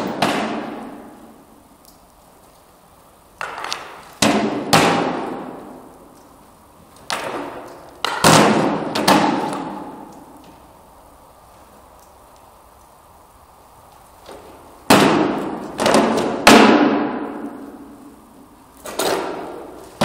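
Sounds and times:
weapons striking wooden shields: 0.0 - 1.1, 3.4 - 5.5, 7.1 - 10.0, 14.9 - 17.5.

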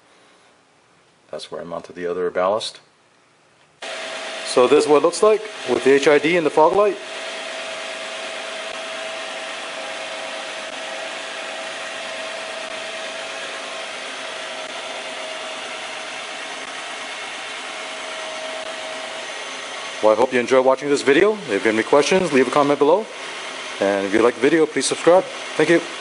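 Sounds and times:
steady hiss-like noise: 0.0 - 3.8.

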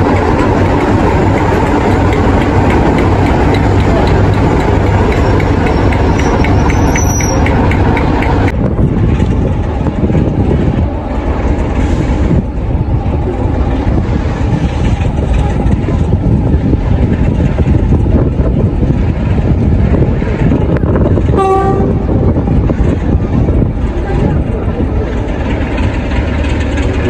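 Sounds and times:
light regular ticking: 0.0 - 8.6
diesel locomotive engine running: 0.0 - 27.0
low train rumble: 0.0 - 27.0.

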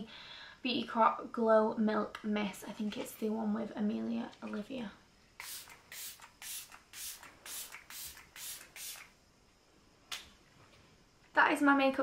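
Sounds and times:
spray bottle hissing: 5.4 - 9.2.

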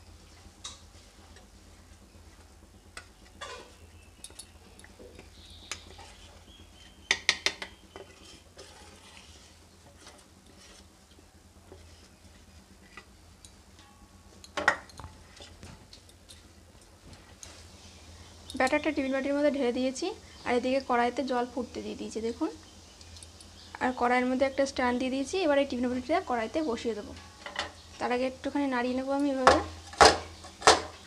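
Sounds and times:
metal spoon scraping steel bowl: 7.9 - 10.9.

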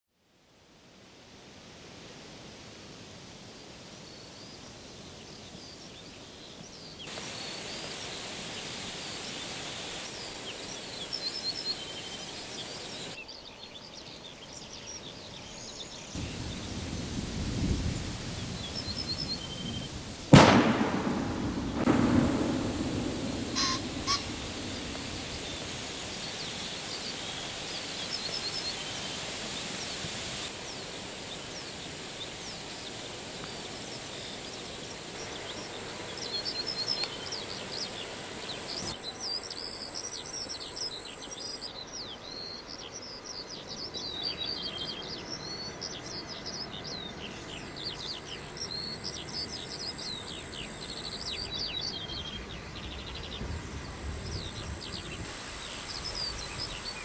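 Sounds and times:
outdoor background hiss: 0.1 - 57.0
songbirds chirping and singing: 32.9 - 53.6.

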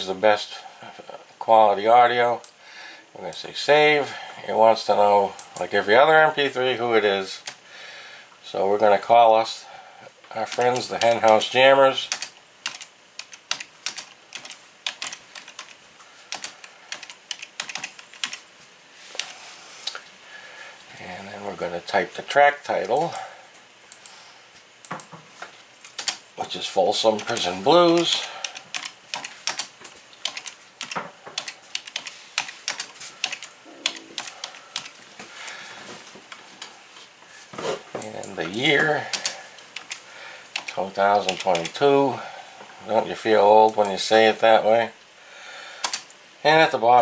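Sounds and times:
typing on keyboard: 10.4 - 11.4, 12.1 - 18.4, 25.8 - 26.2, 27.2 - 35.0, 39.1 - 41.7, 45.8 - 46.1.

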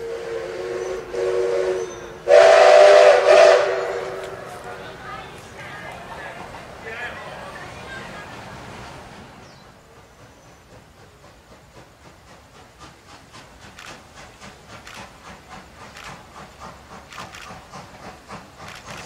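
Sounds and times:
steam locomotive chuffing: 0.0 - 19.0.

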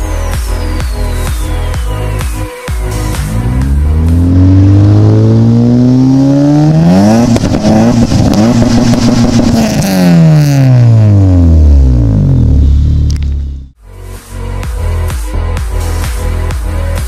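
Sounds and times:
car engine revving: 2.9 - 13.7.

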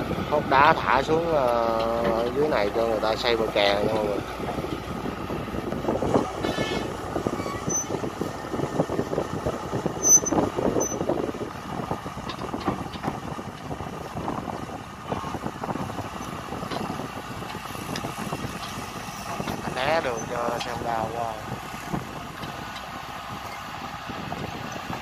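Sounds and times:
excavator diesel engine running: 0.0 - 25.0
clatter and knocks: 12.2 - 13.7.

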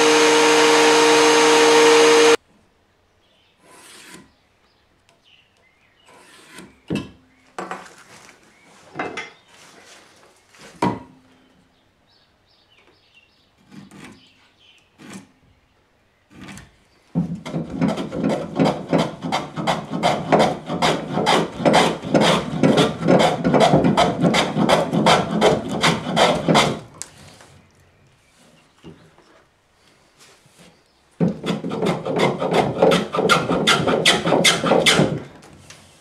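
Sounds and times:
abrasive tool scraping wood: 3.6 - 4.4, 6.0 - 7.0, 13.6 - 15.4, 16.3 - 27.6, 30.4 - 36.0.

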